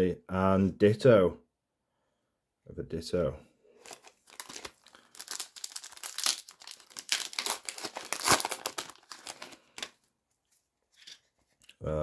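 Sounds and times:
foil pack crinkling and tearing: 0:03.8 - 0:10.0.

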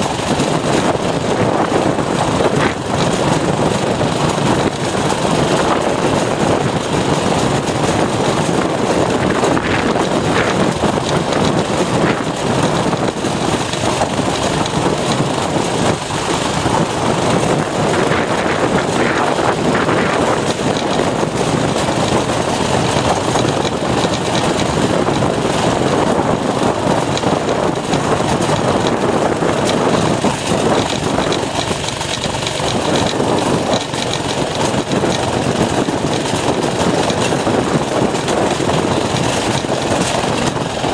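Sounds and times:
small engine under throttle: 0:00.0 - 0:40.9.

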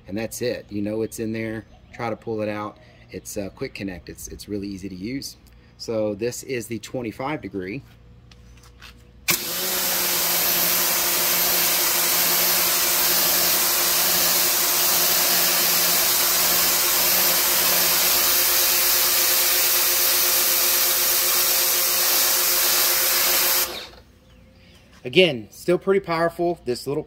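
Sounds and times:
pressure washer spray on concrete: 0:09.3 - 0:23.9
pump motor hum: 0:09.3 - 0:24.0.

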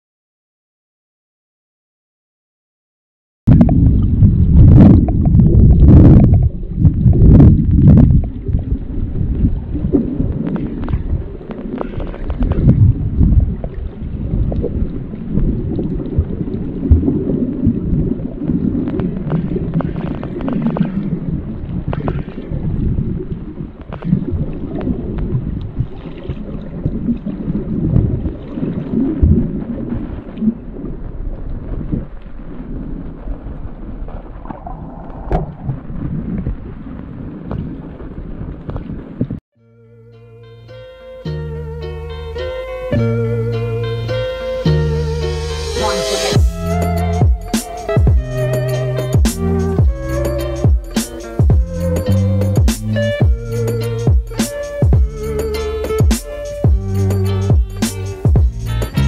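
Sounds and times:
underwater water rumble: 0:03.5 - 0:39.4.

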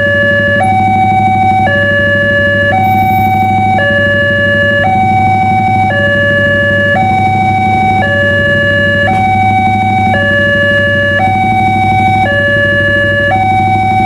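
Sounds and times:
two-tone crossing alarm: 0:00.0 - 0:14.0.

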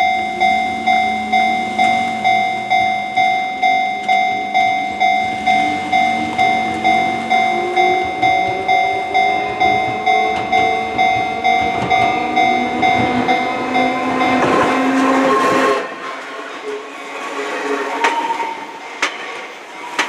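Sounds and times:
level-crossing bell dinging: 0:00.0 - 0:15.8
electric train rumble: 0:00.0 - 0:20.0.

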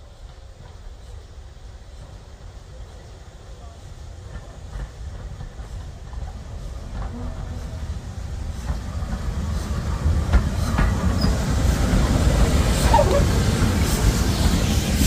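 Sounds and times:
steam train rumble: 0:00.0 - 0:15.0
wheels clicking over rail joints: 0:08.4 - 0:14.6
high wheel squeal: 0:12.8 - 0:13.4.

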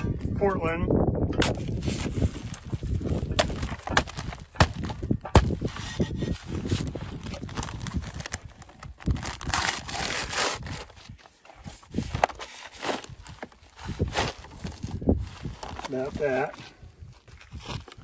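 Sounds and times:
paper crinkling: 0:01.9 - 0:14.8
shovel blade jabbing into sack: 0:03.3 - 0:06.4
shovel scraping cement powder: 0:03.3 - 0:07.1, 0:11.7 - 0:14.8.

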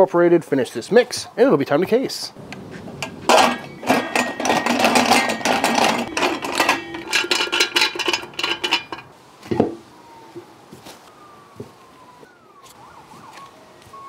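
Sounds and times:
steel parts clanking and ringing: 0:03.0 - 0:09.1.

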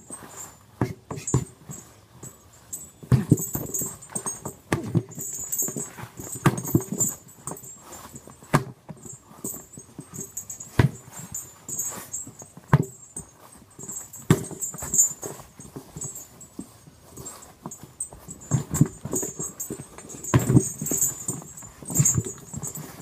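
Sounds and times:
punches thumping on tyres: 0:03.0 - 0:07.7, 0:08.4 - 0:16.7, 0:17.6 - 0:23.0.

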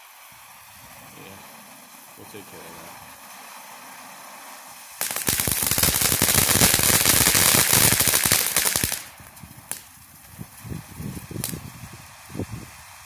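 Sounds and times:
firework crackling: 0:00.0 - 0:13.0
firework fountain hissing: 0:00.0 - 0:13.0
firework pops: 0:05.0 - 0:11.7.

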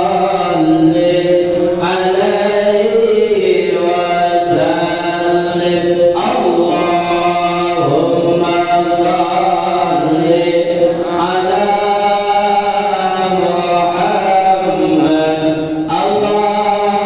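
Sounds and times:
voices chanting: 0:08.7 - 0:12.5.

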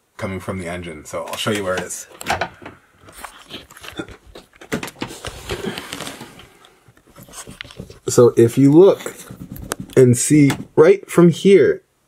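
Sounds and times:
rustling: 0:03.0 - 0:10.8
clicks and knocks of handling: 0:06.9 - 0:08.2.

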